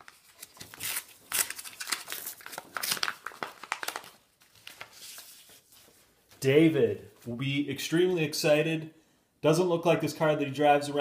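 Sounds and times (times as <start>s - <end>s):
paper crinkling and rustling: 0.0s - 6.4s.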